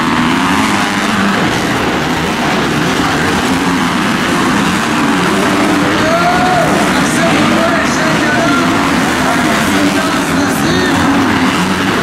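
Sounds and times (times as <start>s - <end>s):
dirt bike engines racing: 0.0s - 12.0s.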